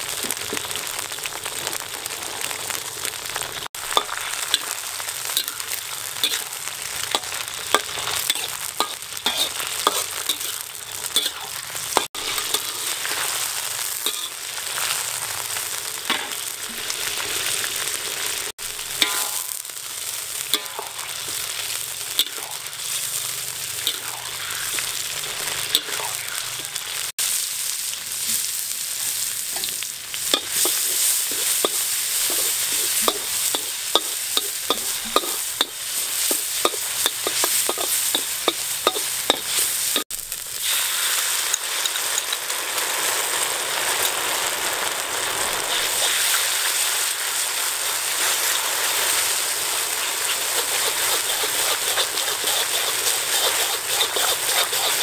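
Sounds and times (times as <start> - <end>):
garlic sizzling in hot oil: 0.0 - 55.0
metal spatula scraping wok: 3.8 - 15.1, 16.1 - 19.7, 20.3 - 27.1, 29.1 - 40.0, 40.6 - 42.5, 45.6 - 46.8, 49.7 - 55.0.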